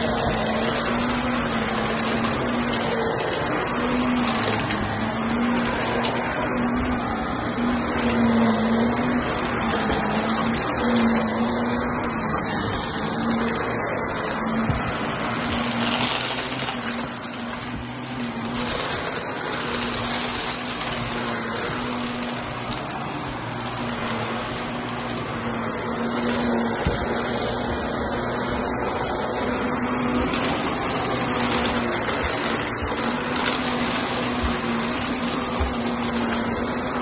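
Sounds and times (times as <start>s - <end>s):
vacuum cleaner running: 0.0s - 37.0s.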